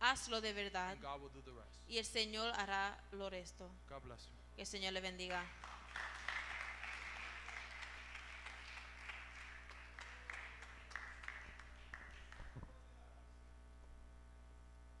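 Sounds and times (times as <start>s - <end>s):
steady electrical hum: 0.0s - 15.0s
audience applause: 5.6s - 12.6s.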